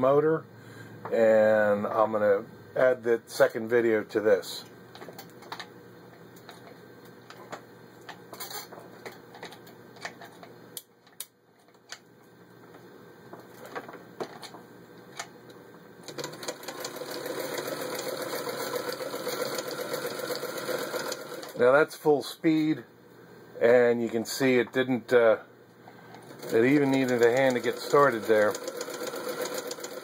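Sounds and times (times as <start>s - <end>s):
sewing machine motor straining: 16.0s - 21.6s, 26.2s - 30.0s.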